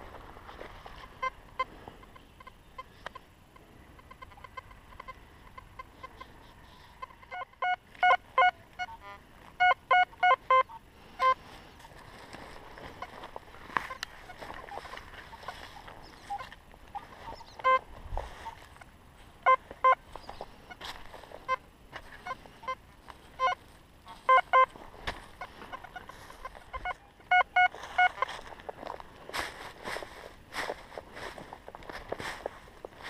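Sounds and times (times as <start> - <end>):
metal detector short beeps: 7.3 - 11.4, 17.2 - 17.8, 19.5 - 20.0, 24.2 - 24.7, 26.7 - 28.3.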